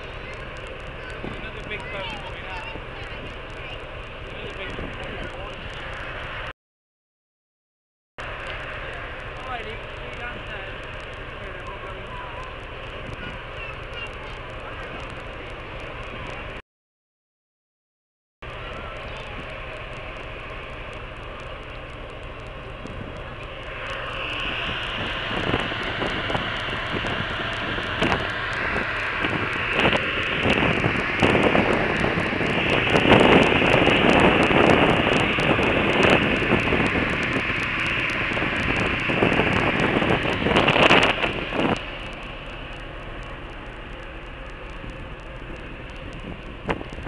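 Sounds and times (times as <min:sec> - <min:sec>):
wind buffeting microphone: 0:00.0 - 0:06.5, 0:09.2 - 0:16.6, 0:18.6 - 0:47.0
ship machinery rushing noise: 0:18.5 - 0:47.0.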